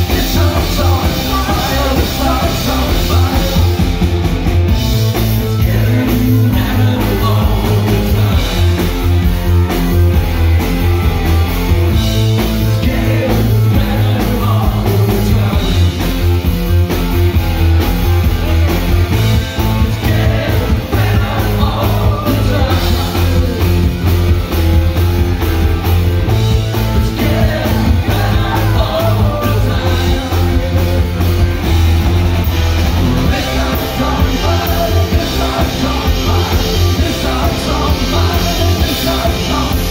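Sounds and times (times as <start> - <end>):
male lead vocal singing: 0.0 - 4.1, 5.2 - 9.2, 12.4 - 16.3, 19.6 - 24.0, 26.7 - 32.0, 32.9 - 39.9
drum kit beat: 0.0 - 39.9
electric guitar: 0.0 - 39.9.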